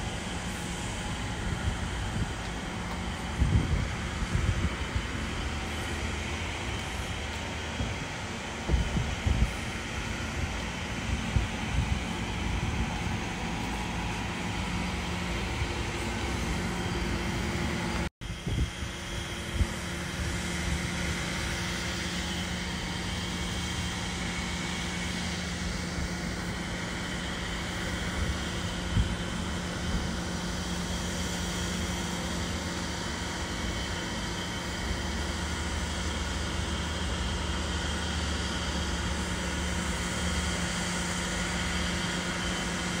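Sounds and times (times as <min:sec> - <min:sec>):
low mechanical hum: 0:00.0 - 0:43.0
outdoor noise: 0:00.0 - 0:43.0.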